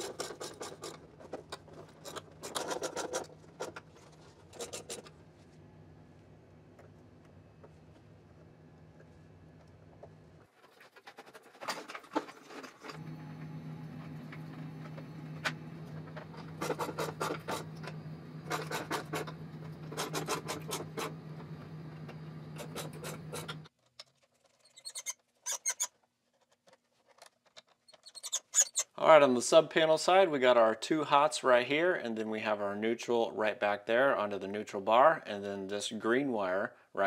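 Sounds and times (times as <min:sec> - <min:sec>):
wire scraping: 0:00.0 - 0:05.2, 0:13.9 - 0:29.0
steady low hum: 0:12.9 - 0:23.7.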